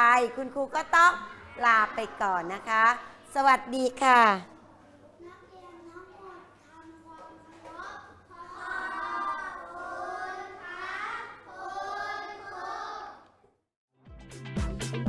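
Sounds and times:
children chanting in unison: 0:08.2 - 0:13.4.

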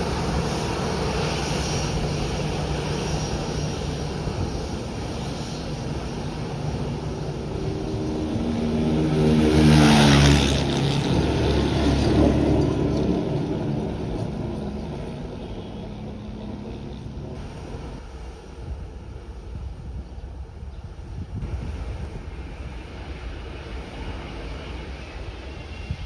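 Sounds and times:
jet engines whining at taxi power: 0:00.0 - 0:18.4, 0:21.5 - 0:26.0.

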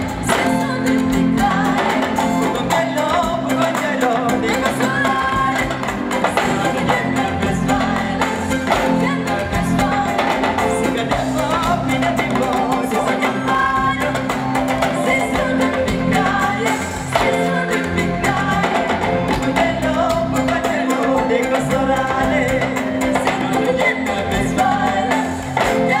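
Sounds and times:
djembe and drum-kit beat: 0:00.0 - 0:26.0
live band music: 0:00.0 - 0:26.0
person singing: 0:00.0 - 0:26.0.

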